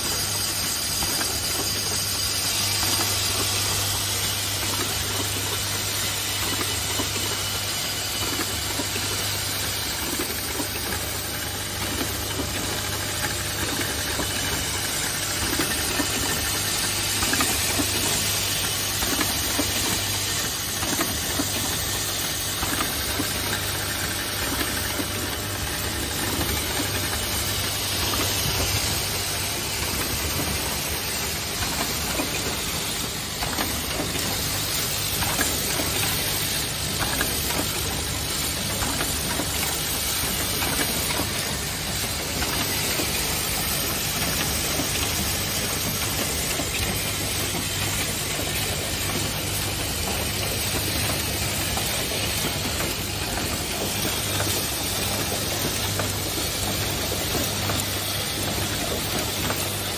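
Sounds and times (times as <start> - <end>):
low machine hum: 0.0 - 59.9
machine parts clicking and clattering: 0.0 - 59.9.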